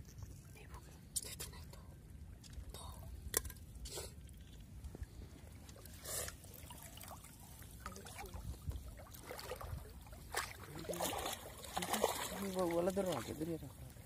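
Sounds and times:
water trickling and splashing: 0.0 - 14.0
short splashes: 9.0 - 13.3.

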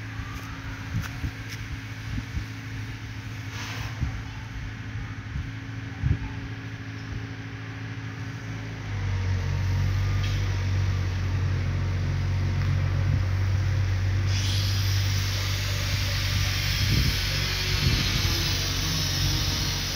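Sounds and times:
loud steady hiss: 13.4 - 19.9
machine motor humming: 14.2 - 19.9.

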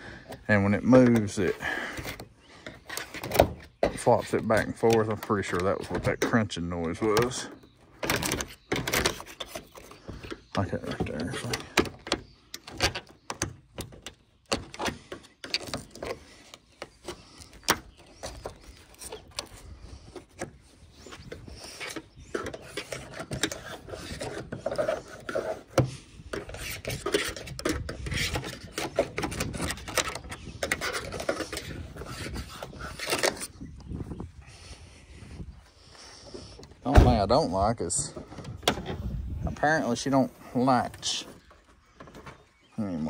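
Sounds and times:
rubbing and scraping: 0.0 - 43.0
sharp clicks and knocks: 0.3 - 16.2.

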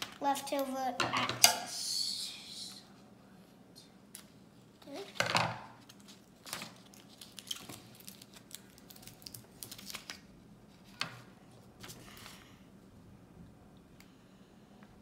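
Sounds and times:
paper rustling and crinkling: 5.8 - 12.4.

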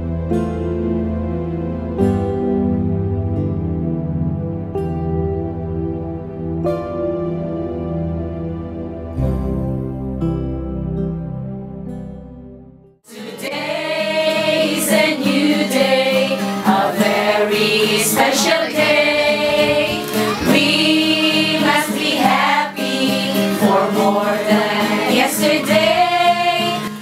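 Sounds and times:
instrumental backing music: 0.0 - 27.0
group singing in chorus: 13.1 - 27.0.

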